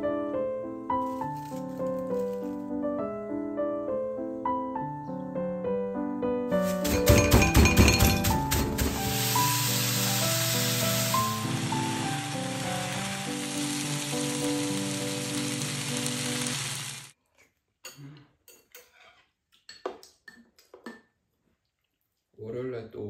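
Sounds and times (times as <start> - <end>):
background music: 0.0 - 16.9
utensils clinking on bowls: 6.6 - 8.8
chicken sizzling in frying pan: 8.3 - 17.2.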